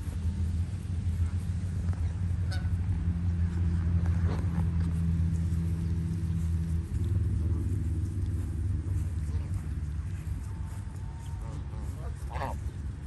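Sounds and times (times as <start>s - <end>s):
steady low rumble: 0.0s - 13.0s
geese honking: 2.0s - 3.1s, 9.1s - 13.0s.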